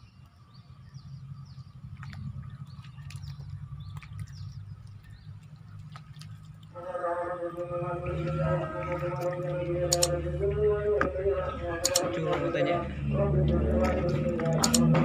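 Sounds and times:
low steady rumble: 0.0s - 15.0s
sharp clicks: 9.9s - 10.3s, 11.8s - 12.3s, 13.8s - 15.0s.

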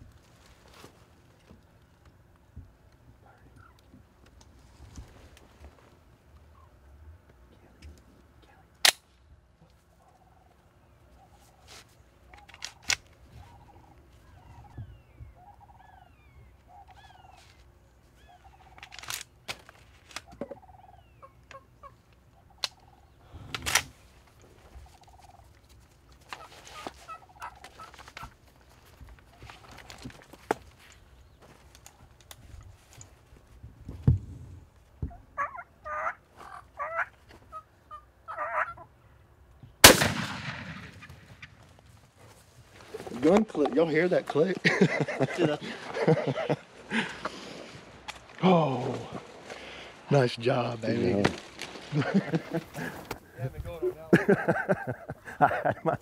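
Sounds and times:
turkeys gobbling: 3.2s - 3.9s, 9.8s - 17.5s, 18.2s - 18.9s, 20.2s - 23.2s, 24.7s - 25.6s, 26.3s - 28.4s, 35.0s - 39.0s, 51.7s - 56.0s
short soft turkey calls: 3.2s - 4.0s, 9.6s - 18.8s, 20.3s - 23.2s, 24.7s - 25.6s, 26.4s - 28.3s, 35.0s - 39.0s
gun misfire click: 8.8s - 9.1s, 39.8s - 41.5s
shotgun blast: 39.8s - 41.6s.

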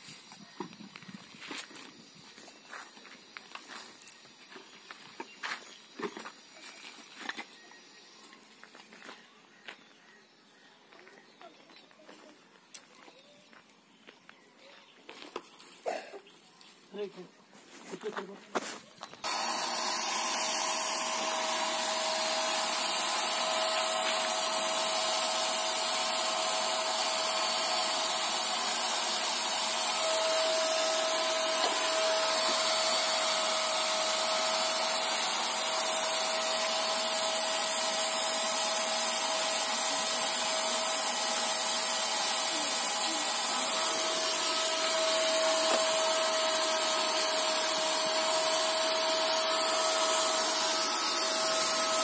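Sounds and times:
paint spray gun motor whine: 0.0s - 10.4s, 19.0s - 52.0s
hiss of paint spraying: 19.2s - 52.0s.

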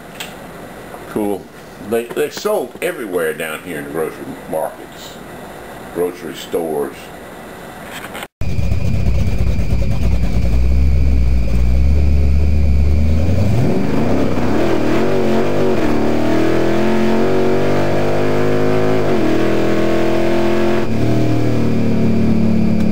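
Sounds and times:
drag car engine revving: 8.4s - 22.9s.

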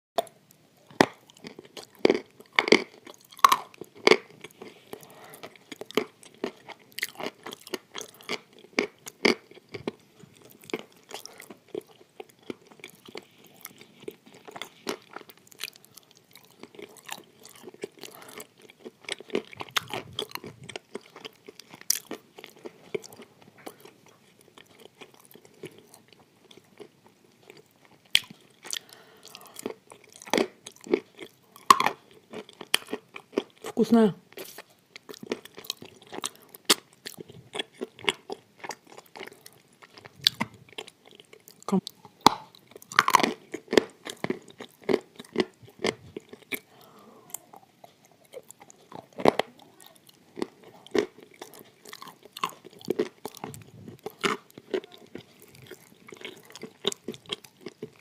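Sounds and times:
crunching and chewing clay: 0.2s - 58.0s.

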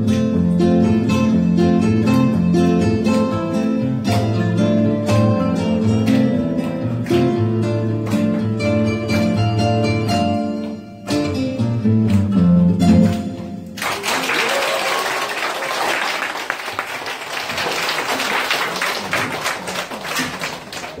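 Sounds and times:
classical guitars plucking: 0.0s - 13.8s
audience applause: 13.8s - 21.0s.

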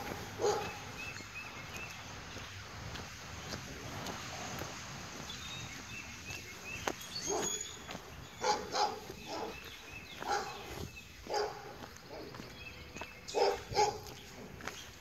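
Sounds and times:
dog barking: 0.0s - 0.9s, 7.3s - 7.6s, 8.4s - 10.7s, 11.3s - 12.4s, 13.3s - 14.2s.

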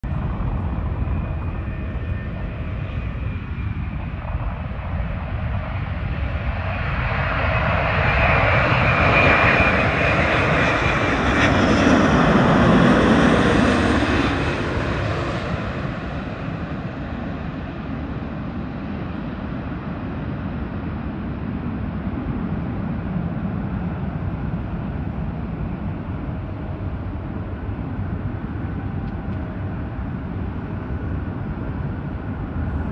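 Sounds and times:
low background rumble: 0.0s - 5.8s
jet airliner passing overhead: 0.0s - 32.9s.

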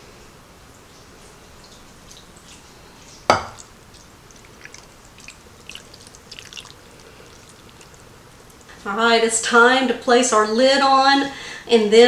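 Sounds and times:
broth trickling and dripping: 1.2s - 8.8s.

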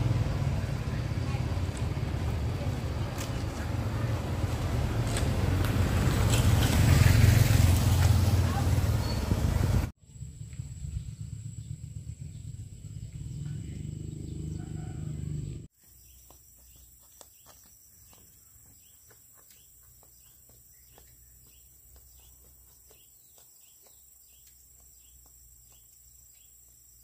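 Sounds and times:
low rumble: 8.1s - 15.7s.

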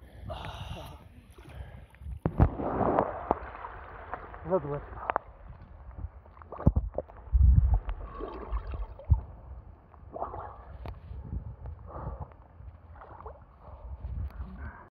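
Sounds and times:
water sloshing and splashing: 0.8s - 11.2s, 12.8s - 14.2s
water thudding against camera: 2.2s - 9.3s.

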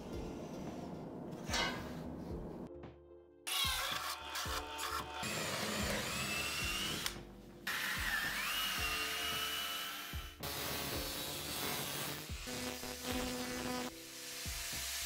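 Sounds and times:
drill boring into wood: 3.5s - 10.9s
angle grinder cutting steel: 3.5s - 15.0s.

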